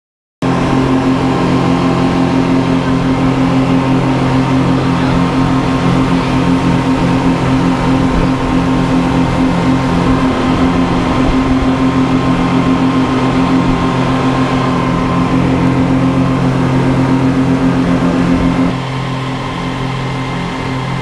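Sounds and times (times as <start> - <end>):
outboard motors droning: 0.4 - 21.0
wake water rushing: 0.4 - 21.0.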